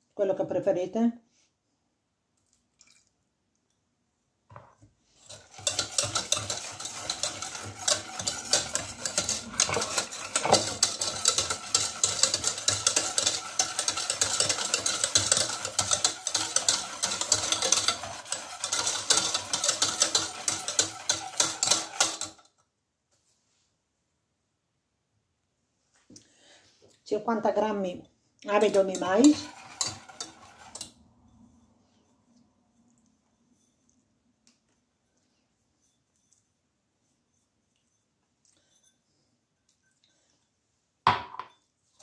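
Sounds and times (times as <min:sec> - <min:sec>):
whisk rattling against metal pot: 0:05.1 - 0:22.4, 0:28.5 - 0:31.4.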